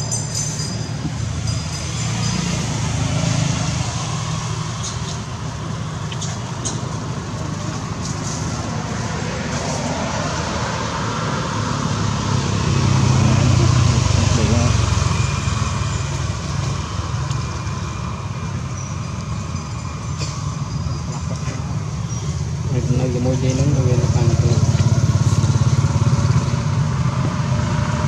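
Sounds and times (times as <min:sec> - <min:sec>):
engine rumbling: 0:00.0 - 0:28.0.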